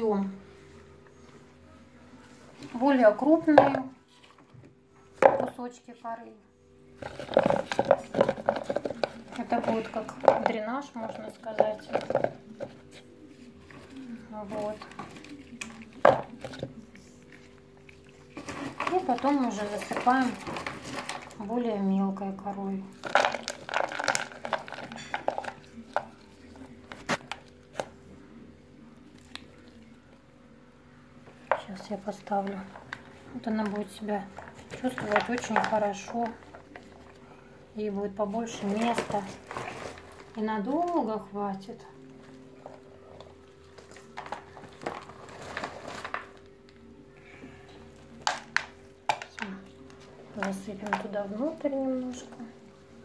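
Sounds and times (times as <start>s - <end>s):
bark chunks dropping into plastic pot: 3.4s - 3.9s, 5.2s - 5.6s, 7.0s - 13.0s, 13.7s - 17.5s, 18.2s - 21.8s, 23.0s - 28.0s, 31.4s - 37.2s, 38.4s - 41.0s, 43.7s - 46.5s, 48.0s - 52.5s.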